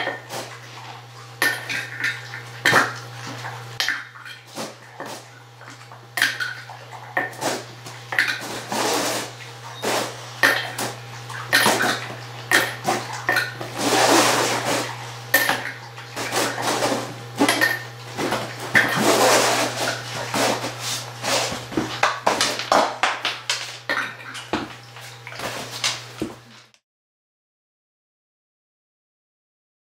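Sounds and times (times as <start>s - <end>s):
wet lapping: 0.1s - 22.3s.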